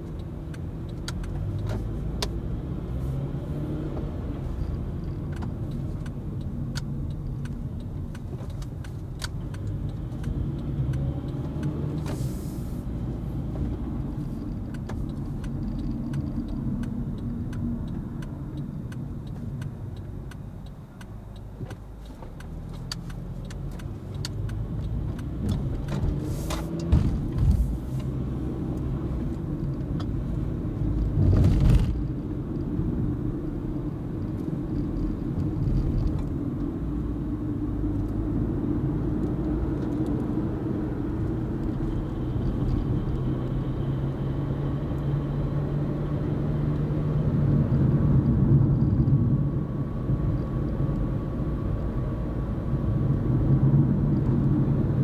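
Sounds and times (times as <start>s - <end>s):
car engine and tyre noise: 0.0s - 55.0s.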